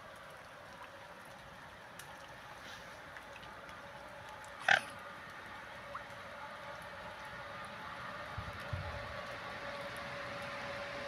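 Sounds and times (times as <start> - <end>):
swan call: 4.6 - 5.0.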